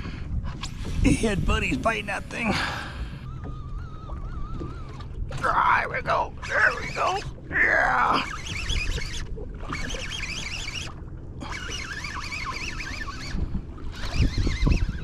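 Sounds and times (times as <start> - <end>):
wind buffeting microphone: 0.0 - 7.6, 13.2 - 15.0.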